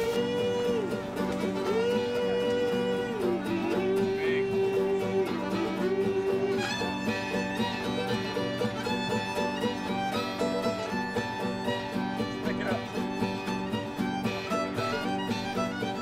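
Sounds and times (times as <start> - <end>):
fiddle sliding between notes: 0.0 - 16.0
guitar accompaniment: 0.0 - 16.0.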